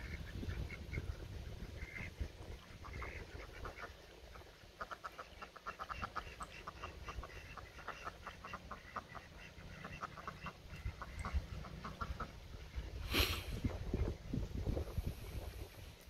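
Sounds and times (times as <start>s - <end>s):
ducks quacking: 0.0s - 13.3s.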